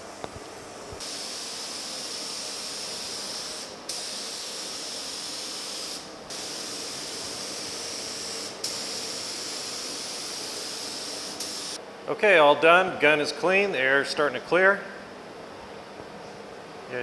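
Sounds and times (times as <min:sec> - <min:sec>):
paint spray gun hissing: 0:01.0 - 0:11.8.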